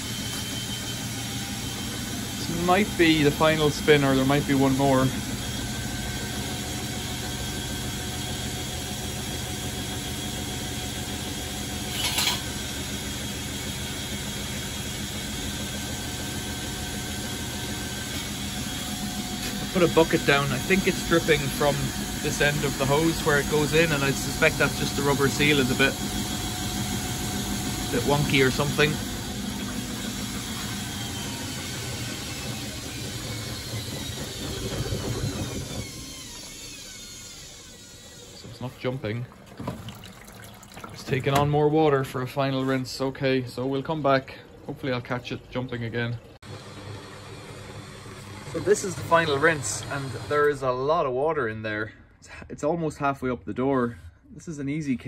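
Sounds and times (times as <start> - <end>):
faint motor whine: 0.0 - 39.7
washing machine humming: 0.0 - 51.6.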